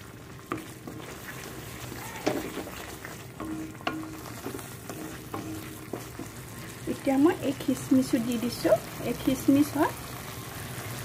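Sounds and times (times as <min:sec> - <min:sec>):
paste frying and sizzling: 0:00.0 - 0:11.0
spatula scraping pan: 0:00.4 - 0:07.8.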